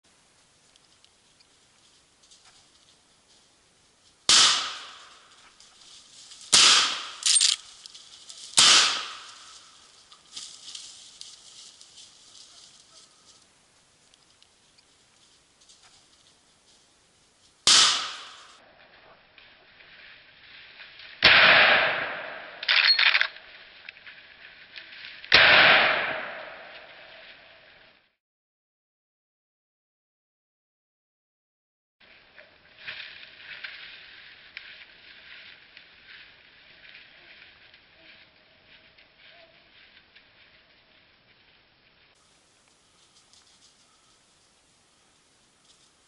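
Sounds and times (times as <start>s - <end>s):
rifle shots with echo: 4.3s - 5.2s, 6.5s - 7.6s, 8.6s - 9.5s, 17.7s - 18.6s, 21.2s - 22.6s, 25.3s - 26.9s
rifle lever rattling: 7.2s - 7.6s
metallic clatter of rifle lever: 7.2s - 7.8s, 22.6s - 23.4s.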